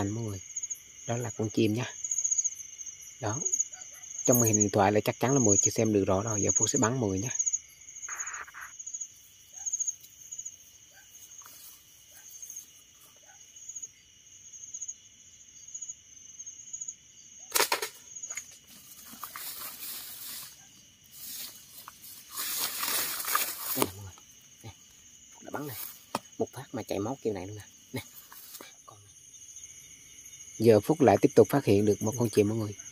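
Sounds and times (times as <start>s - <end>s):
crickets trilling: 0.0s - 32.9s
slingshot snap: 17.5s - 18.0s
rustling in leaves: 18.3s - 24.4s.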